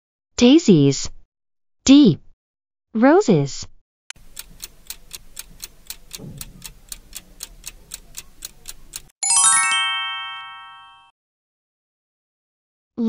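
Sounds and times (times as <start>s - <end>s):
clock ticking: 4.1s - 9.1s
bright ringing chime: 9.2s - 11.1s.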